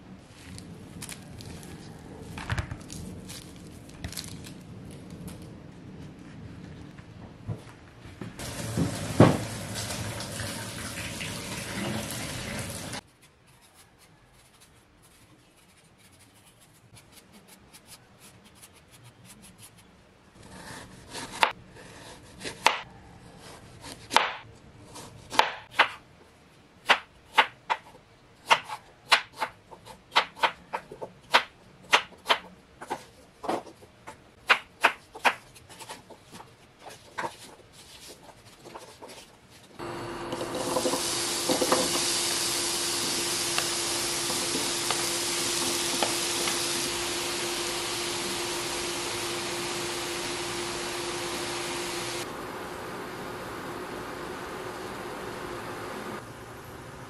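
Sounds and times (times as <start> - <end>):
water running: 8.4 - 13.0.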